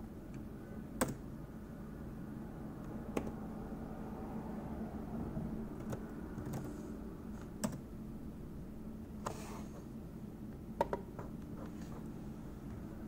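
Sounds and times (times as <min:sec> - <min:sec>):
low steady hum: 0:00.0 - 0:13.0
computer keyboard clicks: 0:01.0 - 0:01.2, 0:05.8 - 0:06.7, 0:07.6 - 0:07.8.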